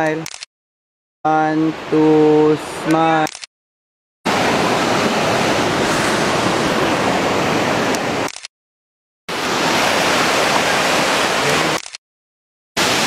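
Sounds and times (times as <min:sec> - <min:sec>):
river rapids roaring: 0:04.3 - 0:08.3, 0:09.3 - 0:11.8, 0:12.8 - 0:13.0.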